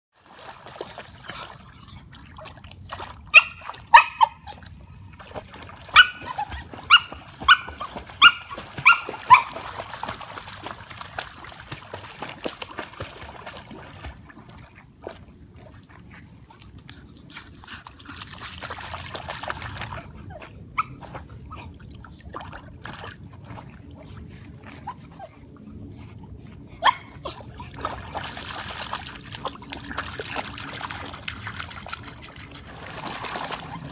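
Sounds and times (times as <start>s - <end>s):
water splashing: 0.2s - 25.3s, 27.2s - 33.9s
dog barking: 3.4s - 4.5s, 6.0s - 9.6s.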